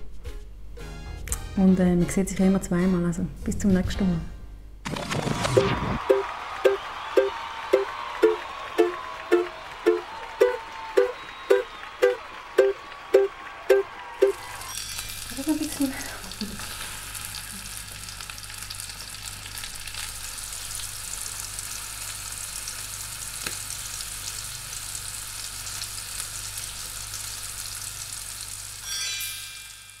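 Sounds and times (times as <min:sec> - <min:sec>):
meat sizzling in a frying pan: 0:14.4 - 0:29.0.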